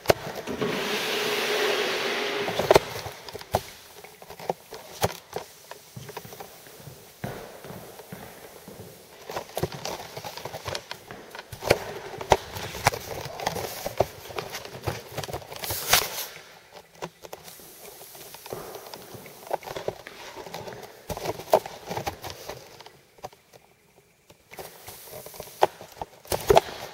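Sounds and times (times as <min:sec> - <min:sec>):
footsteps on hardwood floor: 0:00.0 - 0:15.2, 0:17.5 - 0:21.8
applicator knocking and scuffing floor: 0:00.0 - 0:16.3.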